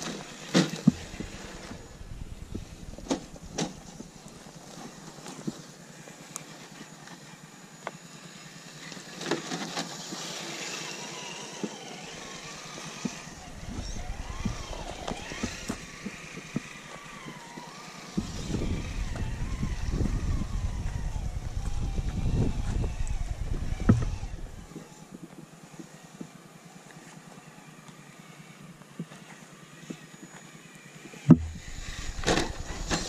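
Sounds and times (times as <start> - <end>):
electric motor whining: 0.0 - 5.5, 8.2 - 25.2, 29.2 - 33.0
tires clicking and knocking: 0.0 - 5.6, 11.5 - 25.5, 31.2 - 33.0
low rumble: 1.0 - 4.3, 13.3 - 16.0, 18.2 - 24.7, 31.3 - 33.0.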